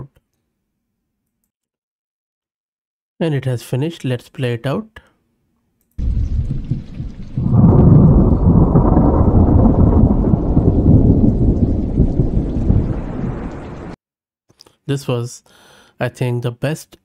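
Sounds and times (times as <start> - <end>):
low rumble of thunder: 6.0 - 14.0
rain patter: 6.0 - 14.0.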